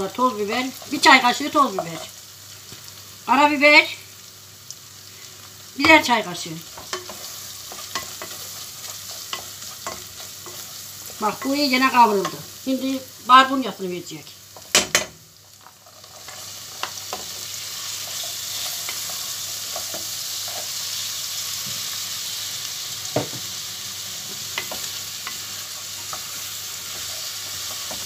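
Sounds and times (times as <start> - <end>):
food sizzling in a pan: 0.0 - 28.0
wooden spoon knocking a pan: 14.6 - 15.2, 23.1 - 23.5.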